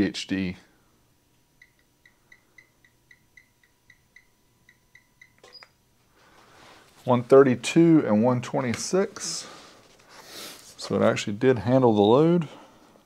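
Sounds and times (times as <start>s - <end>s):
faint steady test tone: 0.9s - 6.0s.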